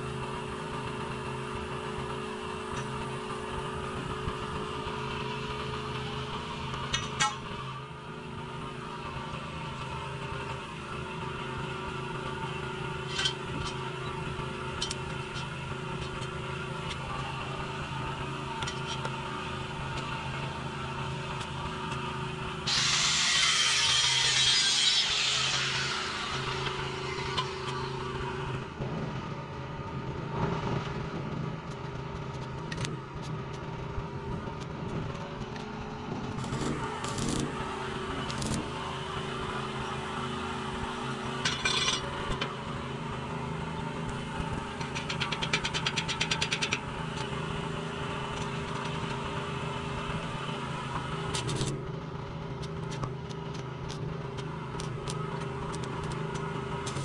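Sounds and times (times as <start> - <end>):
steady machine hum: 0.0 - 57.0
welding arc crackling: 36.3 - 38.8, 54.8 - 57.0.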